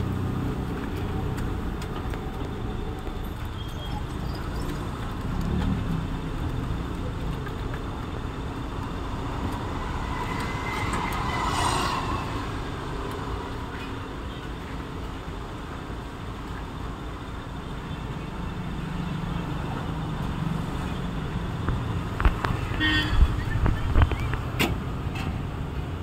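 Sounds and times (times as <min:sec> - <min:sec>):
street traffic: 0:00.0 - 0:26.0
motor scooter passing: 0:09.1 - 0:12.9.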